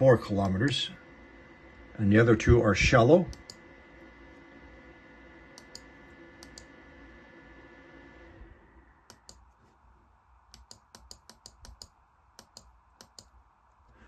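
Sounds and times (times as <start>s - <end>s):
faint steady hum: 0.0s - 14.0s
computer mouse clicking: 3.3s - 3.6s, 5.5s - 6.7s, 9.0s - 9.6s, 10.5s - 14.0s.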